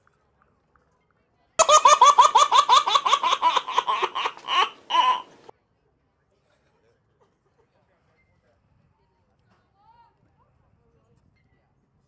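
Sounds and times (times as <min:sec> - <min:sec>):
baby laughing: 0:01.6 - 0:05.5.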